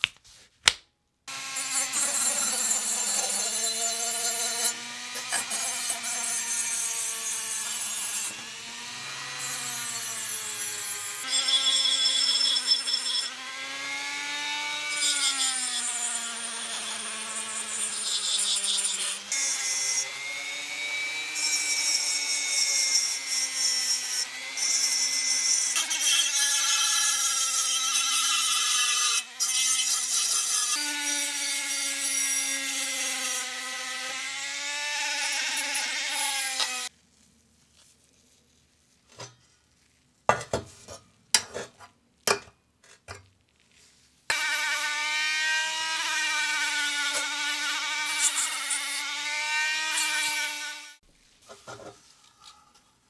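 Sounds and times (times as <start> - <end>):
power tool abrading sheet metal: 1.3 - 36.9, 44.3 - 51.0.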